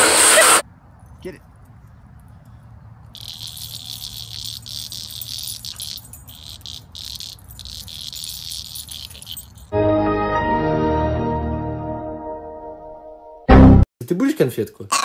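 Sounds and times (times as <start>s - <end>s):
insects chirring: 3.2s - 9.7s.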